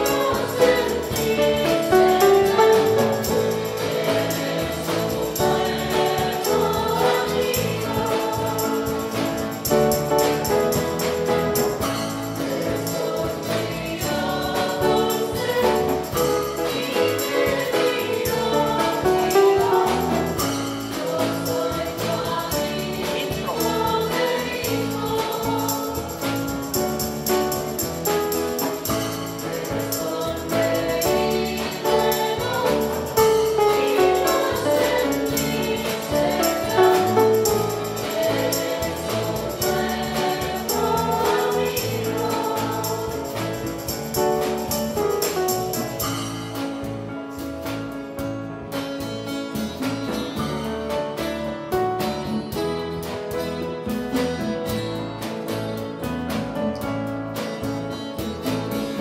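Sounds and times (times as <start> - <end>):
group singing a hymn: 0.0 - 46.2
acoustic guitars: 0.0 - 59.0
drum kit steady beat: 0.0 - 59.0.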